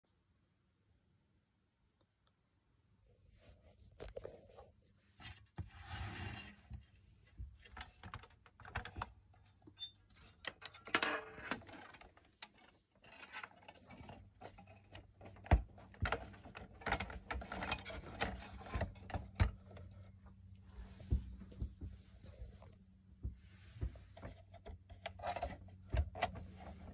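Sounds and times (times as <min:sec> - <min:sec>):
plastic toy truck clicking and rattling: 0:07.7 - 0:19.7.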